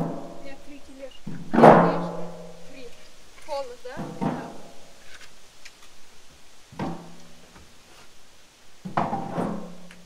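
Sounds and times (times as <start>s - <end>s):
objects clunking into wheelbarrow: 1.1s - 2.6s, 3.4s - 5.3s, 6.7s - 8.1s, 8.8s - 10.0s.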